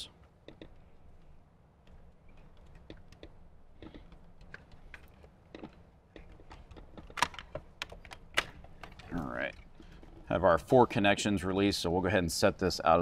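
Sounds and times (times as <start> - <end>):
plastic connectors clicking and rattling: 2.3 - 10.2.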